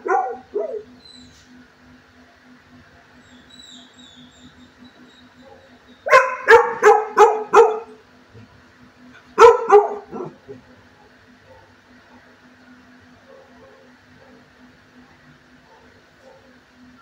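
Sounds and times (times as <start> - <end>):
large dog barking: 0.0 - 0.9, 5.4 - 8.0, 9.4 - 10.6, 11.4 - 11.8, 13.2 - 14.5, 15.6 - 16.6.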